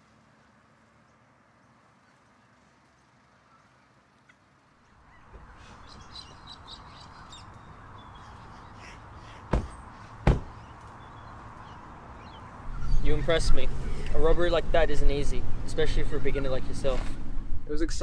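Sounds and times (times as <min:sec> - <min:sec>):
birds calling: 0:04.8 - 0:14.3
car doors slamming: 0:09.5 - 0:10.7.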